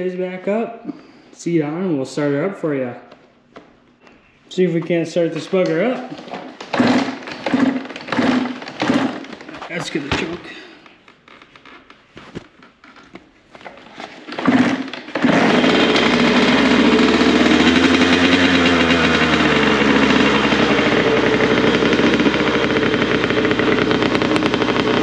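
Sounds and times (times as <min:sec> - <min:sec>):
dirt bike engine starting and running: 0:05.1 - 0:10.8, 0:14.1 - 0:25.0.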